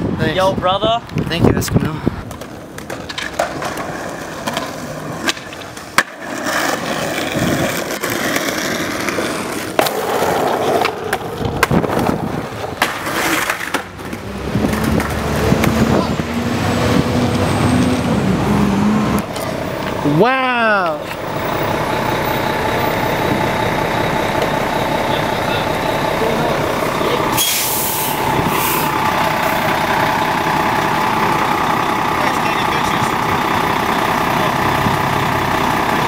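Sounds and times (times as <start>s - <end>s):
skateboard wheels rolling on concrete: 0.0s - 36.0s
skateboard clacking: 2.2s - 15.8s, 19.2s - 20.0s, 24.0s - 25.2s.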